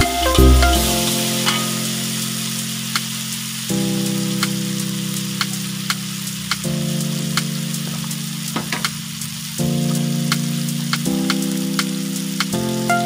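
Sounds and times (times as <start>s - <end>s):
onions sizzling in hot oil: 0.0s - 13.0s
slow held chords music: 0.0s - 13.0s.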